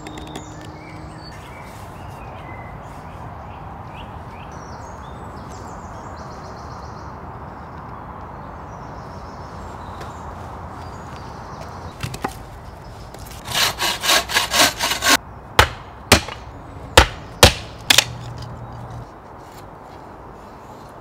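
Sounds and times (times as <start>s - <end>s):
rasping strokes: 13.2s - 15.2s.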